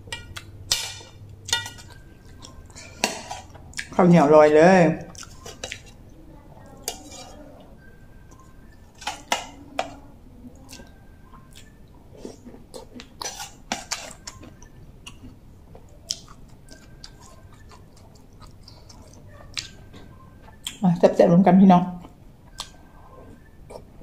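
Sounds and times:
soft chewing: 0.0 - 4.0, 5.0 - 20.8, 22.0 - 24.0
metal spoon clinking on bowl: 0.1 - 2.0.

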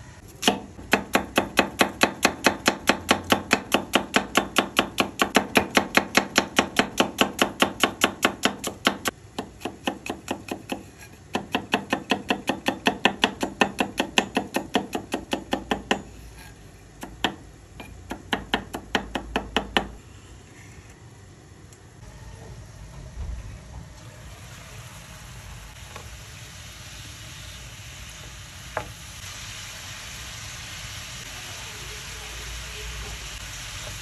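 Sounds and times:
knife chopping on cutting board: 0.4 - 20.0.

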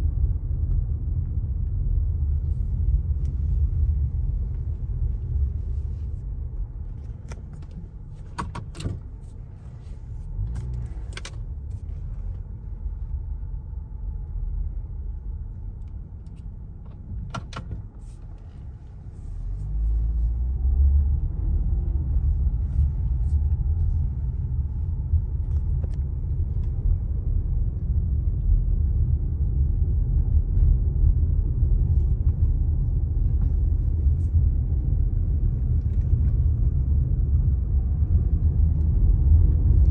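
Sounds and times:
road and engine rumble: 0.0 - 39.9.

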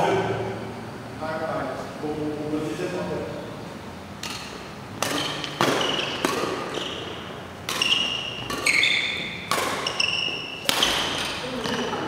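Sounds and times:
rackets hitting shuttlecock: 4.2 - 12.0
high-pitched shoe squeaks: 5.2 - 11.0.

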